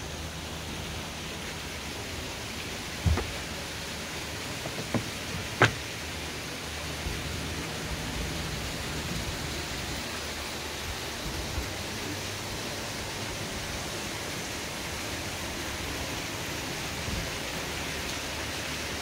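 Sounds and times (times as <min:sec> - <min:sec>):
rushing water: 0:00.0 - 0:19.0
sharp knocks: 0:03.0 - 0:03.5, 0:04.6 - 0:05.9.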